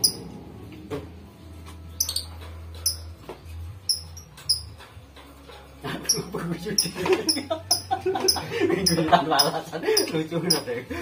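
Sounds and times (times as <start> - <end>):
small animal squeaks: 6.1 - 10.7.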